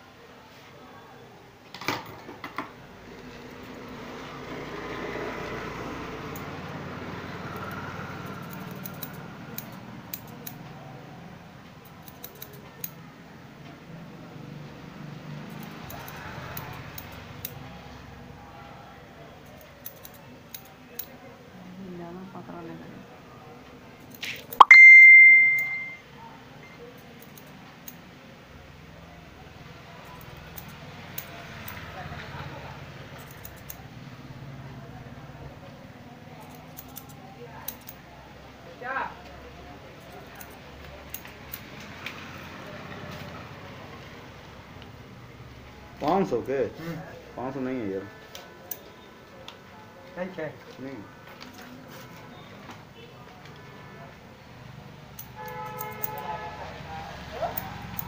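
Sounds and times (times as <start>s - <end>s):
scissors snipping: 8.4s - 10.6s, 36.4s - 38.0s
loud electronic beep: 24.6s - 26.0s.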